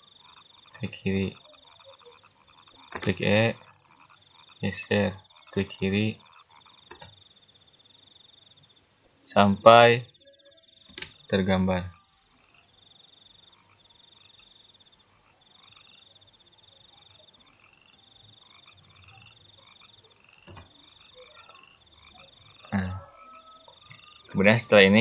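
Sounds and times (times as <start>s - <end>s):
animals trilling: 0.0s - 25.0s
steady high chirring: 0.0s - 25.0s.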